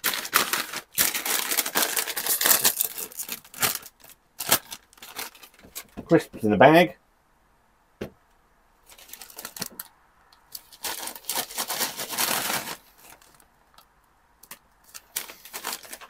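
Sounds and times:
crisps crunching: 0.0 - 6.0, 8.8 - 9.9, 10.5 - 13.8, 14.4 - 16.0
foil packet crinkling: 0.0 - 6.0, 8.8 - 9.9, 10.5 - 13.5, 14.4 - 16.0.

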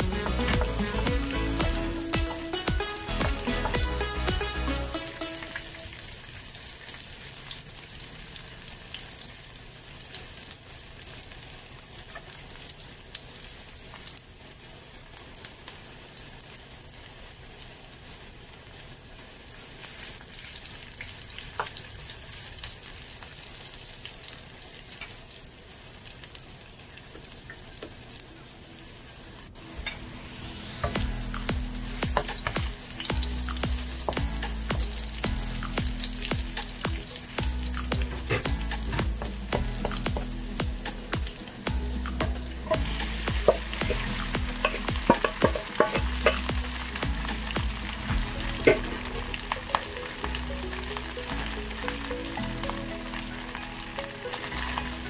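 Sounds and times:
garlic sizzling in hot oil: 0.0 - 55.0
wooden spoon stirring: 42.3 - 46.5.

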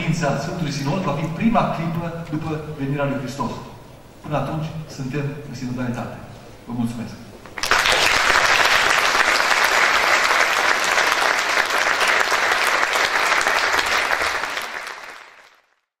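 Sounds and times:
audience applauding: 7.6 - 15.9.

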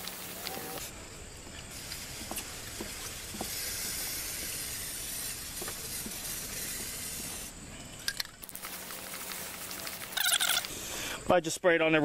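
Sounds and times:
aerosol can spraying: 1.7 - 7.6.

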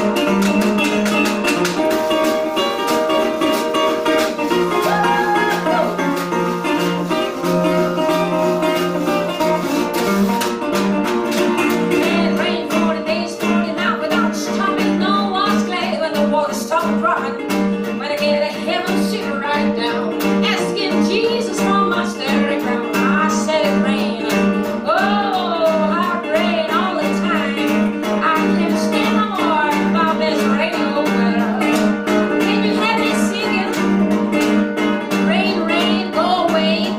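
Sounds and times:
washboard scraped in rhythm: 0.0 - 12.3
acoustic blues guitar: 0.0 - 36.9
woman singing: 4.7 - 6.1, 11.6 - 34.2, 35.1 - 36.9.

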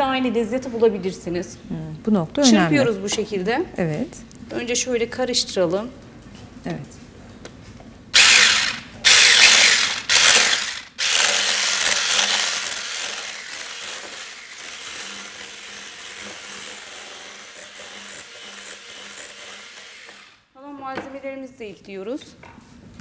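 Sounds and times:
electric hand mixer whisking: 8.2 - 20.4.

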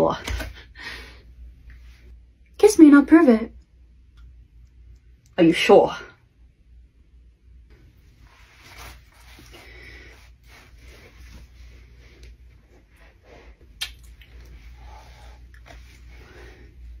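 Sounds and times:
wet kissing mouth sounds: 13.8 - 14.3.

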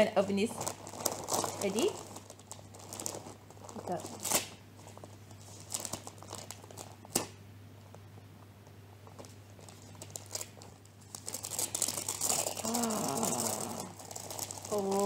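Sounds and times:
wrapping paper crinkling and tearing: 0.0 - 7.4, 9.0 - 15.0
sharp paper snap: 4.2 - 4.6, 7.1 - 7.4.

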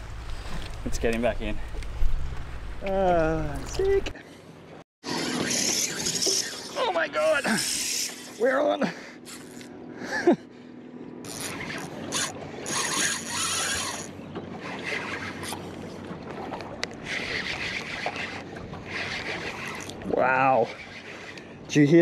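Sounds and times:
fishing reel drag buzzing: 5.0 - 9.7, 11.2 - 15.7, 17.0 - 21.6.

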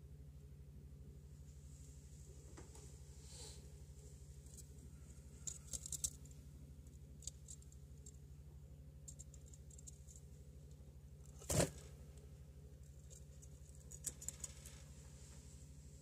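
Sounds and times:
steady low hum: 0.0 - 16.0
birds clicking and scratching in cage: 5.3 - 6.3, 7.0 - 8.2, 9.0 - 11.8, 12.8 - 14.9.

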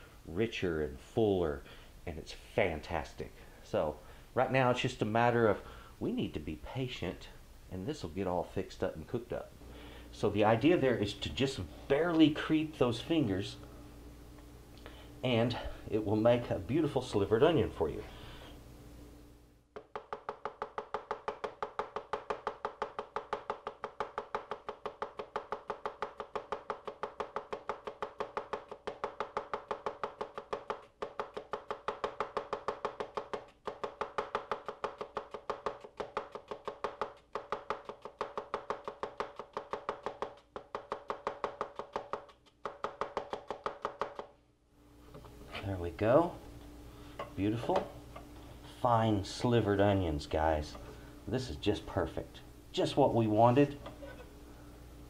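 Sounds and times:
knife slicing onion on board: 19.8 - 44.3.

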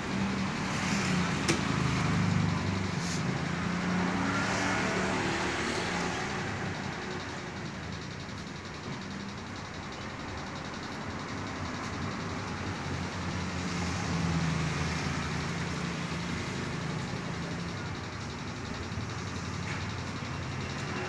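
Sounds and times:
vehicle engine hum passing: 0.0 - 8.6
background traffic noise: 0.0 - 21.0.

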